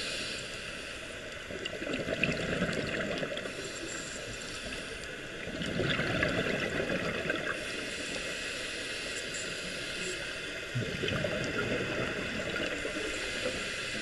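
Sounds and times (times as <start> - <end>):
scuba exhalation bubbles underwater: 1.6 - 3.5, 5.4 - 7.6, 10.7 - 12.9.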